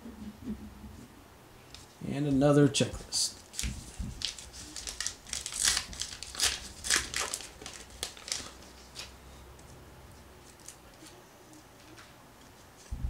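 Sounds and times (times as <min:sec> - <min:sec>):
wrapper tearing and crinkling: 0:03.4 - 0:09.2
soft handling of wrapper: 0:03.4 - 0:09.8.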